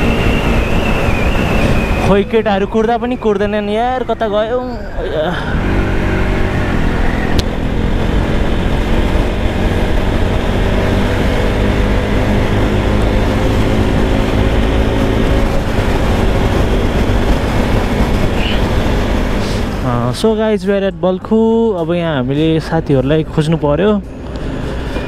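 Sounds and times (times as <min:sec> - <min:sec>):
wind on microphone: 0:00.0 - 0:03.7
motorcycle engine cruising: 0:00.0 - 0:20.6.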